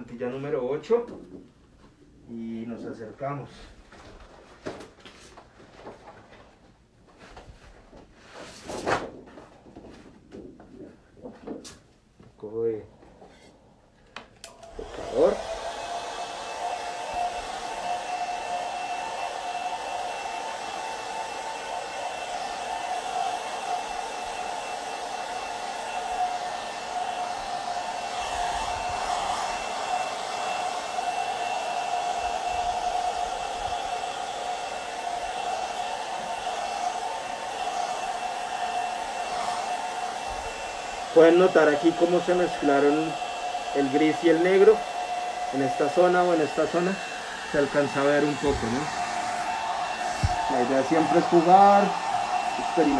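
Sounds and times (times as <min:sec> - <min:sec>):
hair dryer running: 0:14.2 - 0:52.9.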